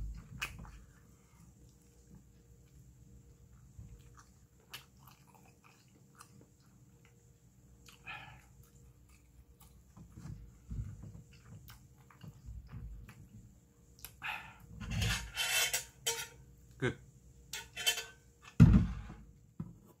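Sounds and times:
metal spoon scraping a pot: 14.8s - 16.4s, 17.5s - 18.2s
low thud: 18.6s - 19.2s.

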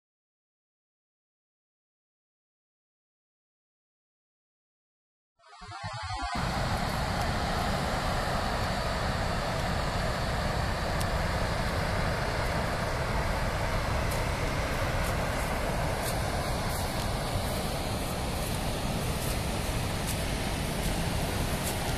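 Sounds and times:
rushing floodwater: 6.4s - 21.9s.

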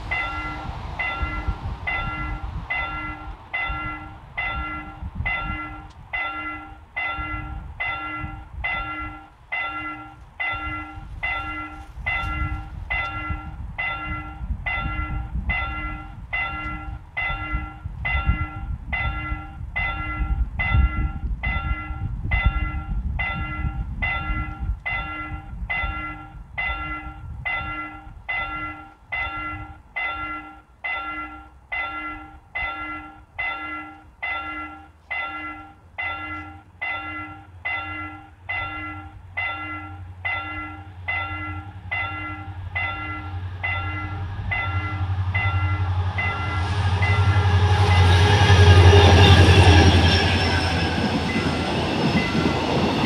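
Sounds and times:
low uneven rumble: 0.0s - 6.2s
level crossing bell ringing: 0.1s - 47.3s.

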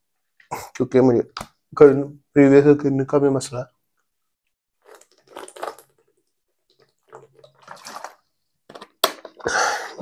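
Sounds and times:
water sloshing in a bottle: 4.8s - 8.5s.

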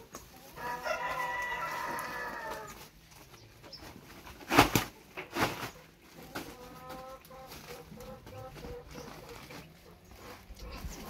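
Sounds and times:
rooster crowing: 0.6s - 2.7s.

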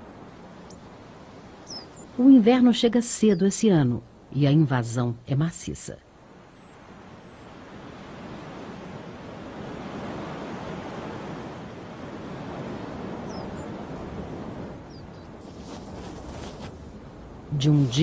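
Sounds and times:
snowstorm wind blowing: 6.8s - 18.0s.

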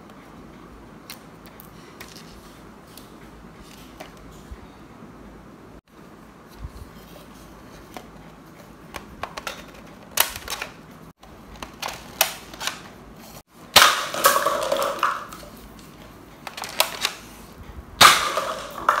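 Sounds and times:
paper cups clattering down: 13.8s - 15.6s, 18.0s - 19.0s.

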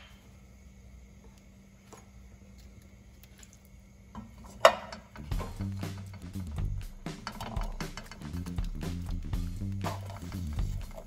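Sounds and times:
faint steady hum: 0.0s - 11.0s
background music with drums: 5.2s - 11.0s.

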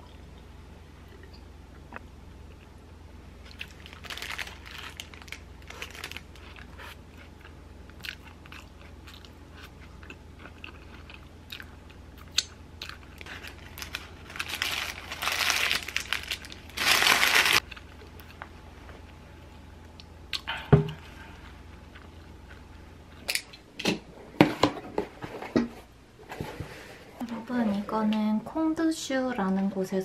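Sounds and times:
crunchy chewing: 3.4s - 16.6s
parchment paper crumpling: 3.6s - 6.6s, 13.2s - 17.6s.

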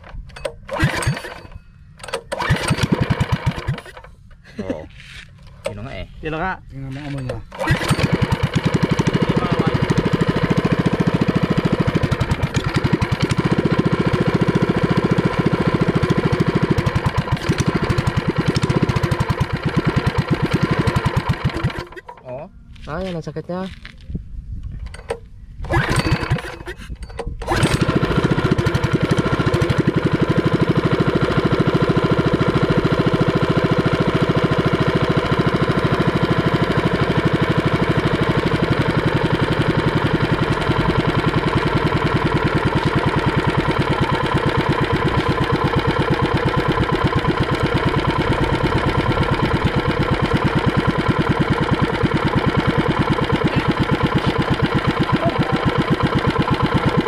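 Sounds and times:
small engine starting and running: 0.0s - 22.4s, 24.7s - 57.0s.

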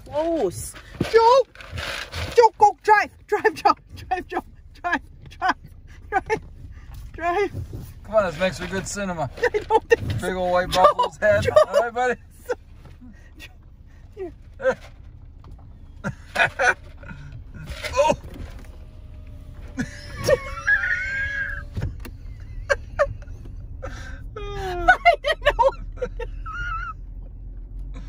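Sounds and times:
low car hum: 0.0s - 28.0s
woman laughing and squealing: 19.7s - 27.1s.

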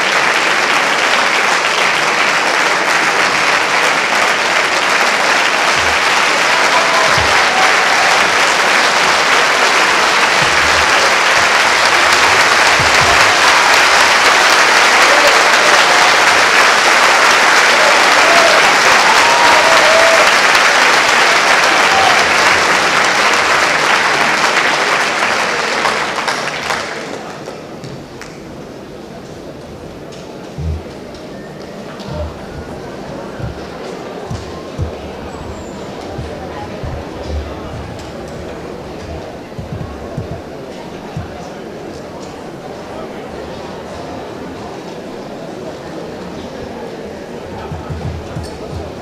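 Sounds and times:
audience applauding: 0.0s - 28.4s, 32.0s - 41.5s.

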